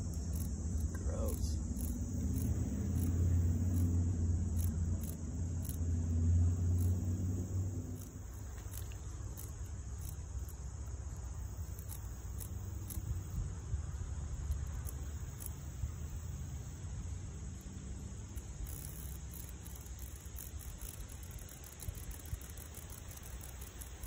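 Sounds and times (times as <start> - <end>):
low rumble: 0.0 - 14.8
faint irregular ticks: 0.0 - 24.0
insects trilling: 0.0 - 24.0.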